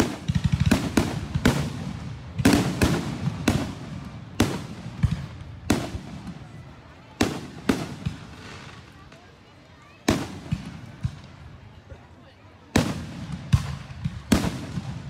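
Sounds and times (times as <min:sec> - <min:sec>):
fireworks booming: 0:00.0 - 0:09.2, 0:10.0 - 0:11.4, 0:12.7 - 0:15.0
fireworks crackle: 0:00.0 - 0:11.8.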